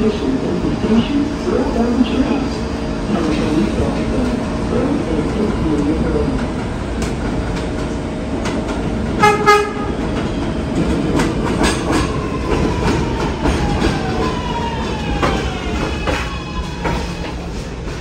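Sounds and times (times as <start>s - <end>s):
subway train rumbling on rails: 0.0s - 18.0s
train horn toots: 9.2s - 10.0s.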